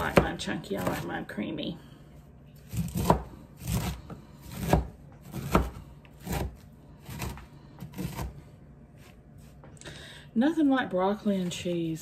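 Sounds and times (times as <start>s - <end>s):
knife chopping on wooden board: 0.0s - 1.2s, 2.7s - 8.4s.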